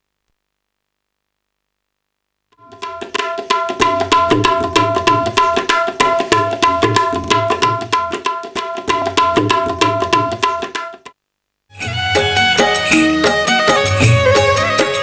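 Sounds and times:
high tabla drum strokes: 2.6 - 11.2, 11.8 - 15.0.

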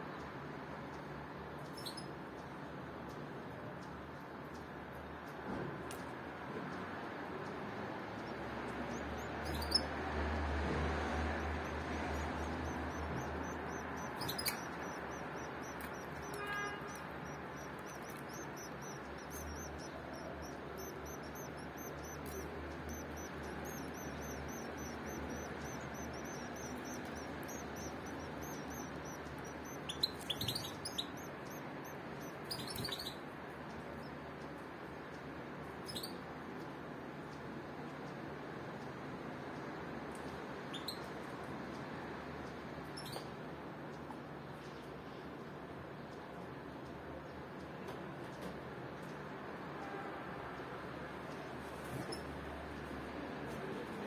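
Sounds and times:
finches chirping: 1.6 - 2.5, 7.4 - 34.5, 35.1 - 36.2, 40.7 - 41.8, 42.9 - 43.3, 51.3 - 54.0.

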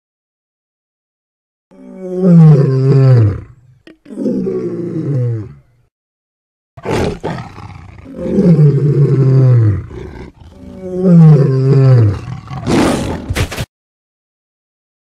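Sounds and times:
tiger roaring: 1.7 - 5.7, 6.8 - 13.4.

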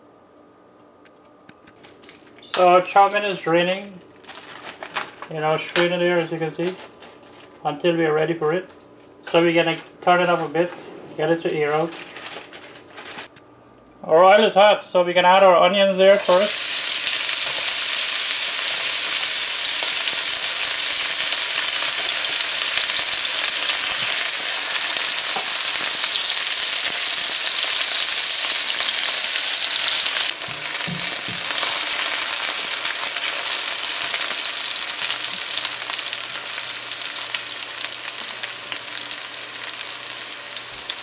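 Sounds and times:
onions sizzling in oil: 16.1 - 41.0.

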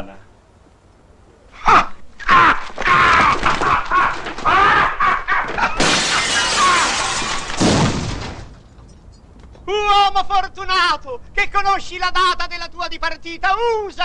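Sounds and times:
man screaming: 1.6 - 5.6
window glass shattering: 2.3 - 9.1.

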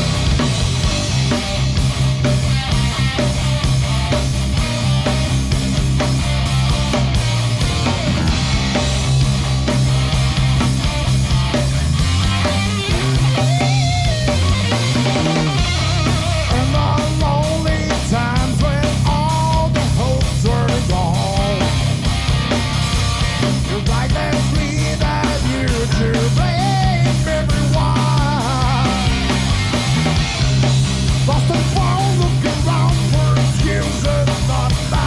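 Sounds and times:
rock band playing loud: 0.0 - 35.0
man singing: 16.4 - 21.9, 23.6 - 29.4, 31.3 - 35.0.

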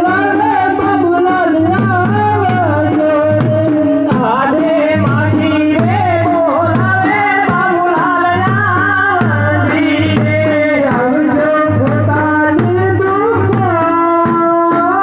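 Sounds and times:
hand drum rhythm: 0.0 - 15.0
person singing folk song: 0.0 - 15.0.

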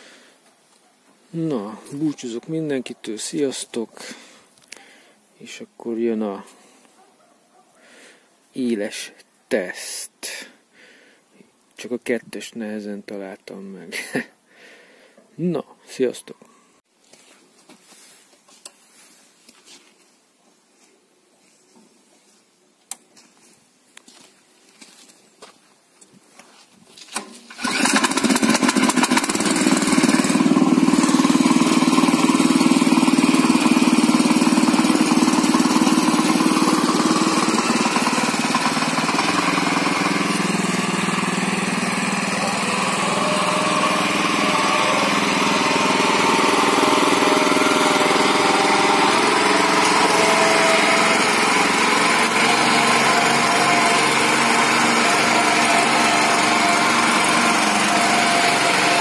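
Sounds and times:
tractor petrol engine running: 27.1 - 59.0.

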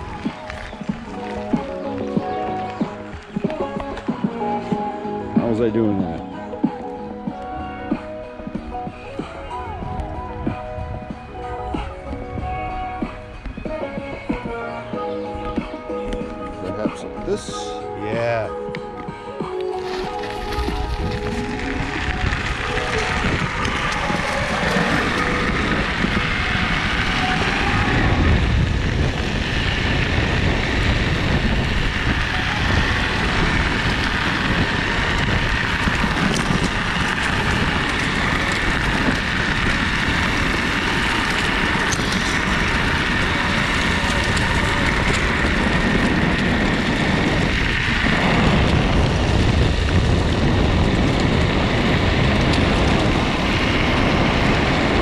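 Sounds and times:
tyres crunching on gravel: 0.0 - 4.6, 15.6 - 55.0
wind on microphone: 7.2 - 14.6, 19.7 - 55.0
electric motor whine: 19.6 - 55.0.

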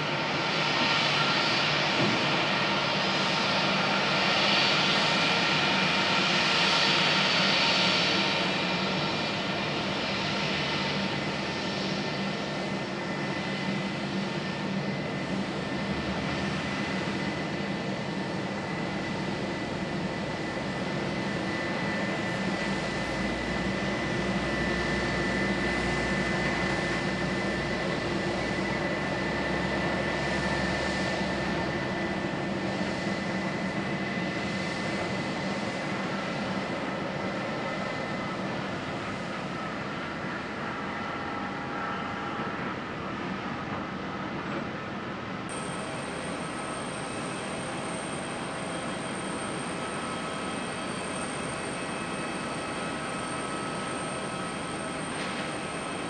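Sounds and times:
jet engines whining: 0.0 - 44.4, 45.0 - 56.0.

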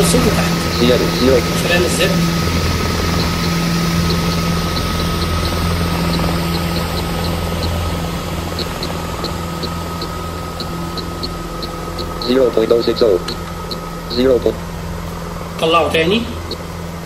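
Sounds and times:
mechanical drone with hum: 0.0 - 17.0
thin high tone: 0.0 - 17.0
light irregular ticks: 2.3 - 15.2, 16.4 - 16.7.

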